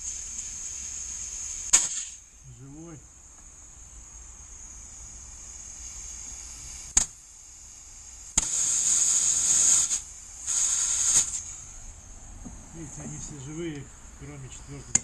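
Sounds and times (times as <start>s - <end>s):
compressed air hissing: 0.0s - 15.0s
faint steady hiss: 0.0s - 15.0s
sharp click: 1.7s - 2.2s, 6.9s - 7.2s, 8.4s - 8.6s.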